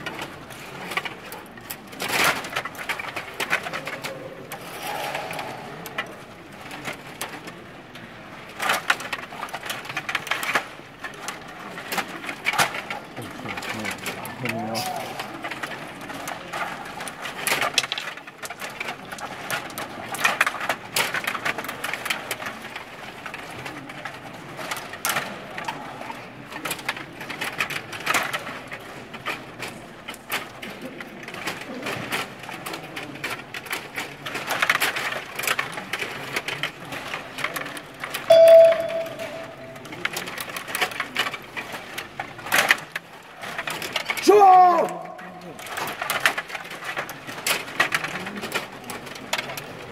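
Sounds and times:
table hockey rods clattering: 0.0s - 30.6s, 31.4s - 49.9s
brief steady tone: 38.3s - 39.8s.

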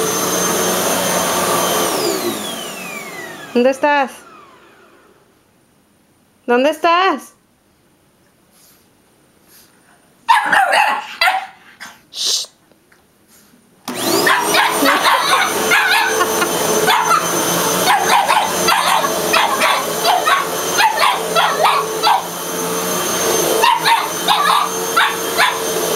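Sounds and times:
vacuum cleaner running: 0.0s - 5.3s, 13.8s - 25.9s
dog barking: 10.3s - 11.7s, 14.1s - 22.4s, 23.4s - 25.9s.

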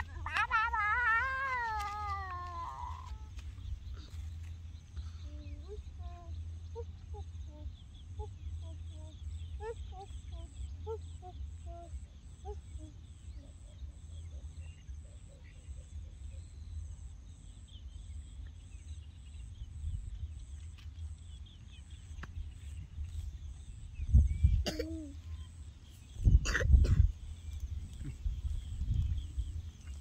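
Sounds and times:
wind rumble on microphone: 18.9s - 24.7s, 26.0s - 30.0s.

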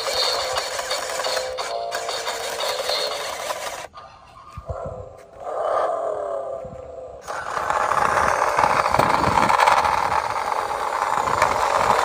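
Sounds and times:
toy car wheels whirring on concrete: 0.0s - 4.7s, 7.2s - 12.0s.

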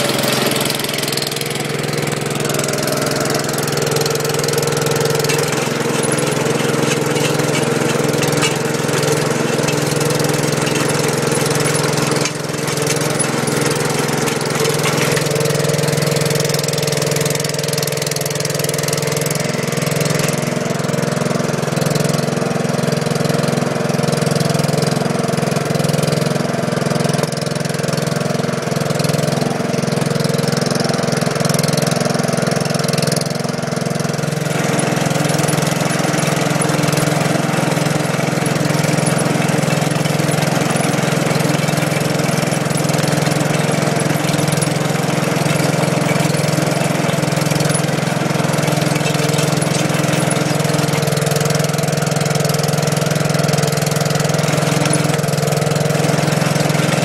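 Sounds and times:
digging chain through soil: 0.0s - 25.1s, 28.2s - 57.0s
tractor engine under load: 0.0s - 57.0s.

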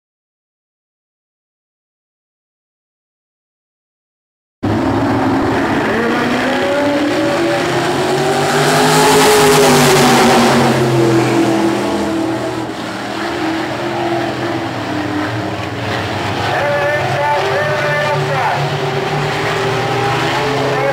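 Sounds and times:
race car engines roaring: 4.6s - 20.9s.

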